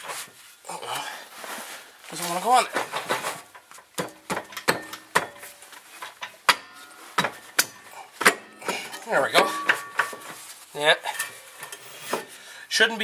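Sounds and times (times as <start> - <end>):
metallic knocks and clanks: 2.7 - 12.3.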